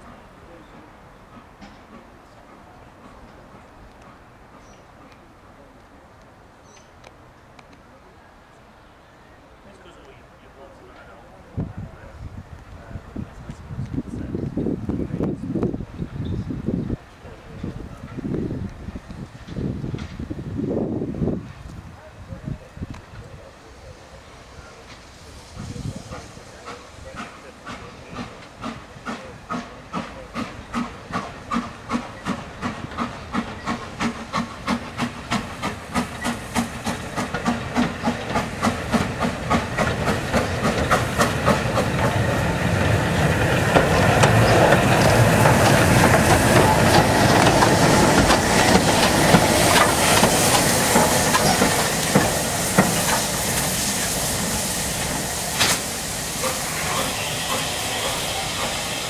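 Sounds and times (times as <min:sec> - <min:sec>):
steam hiss and running gear rumble: 0:00.0 - 0:59.0
steam locomotive exhaust beats: 0:22.8 - 0:59.0.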